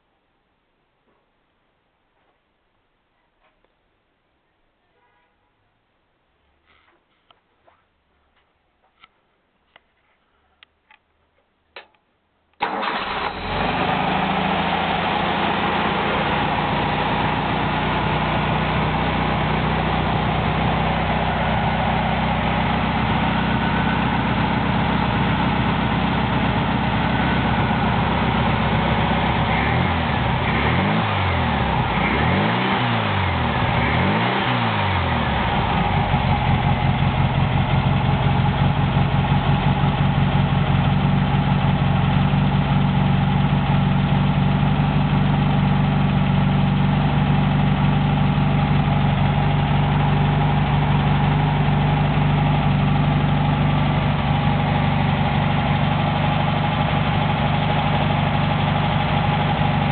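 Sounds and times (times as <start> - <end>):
air-cooled engine running: 12.6 - 32.5, 33.1 - 59.9.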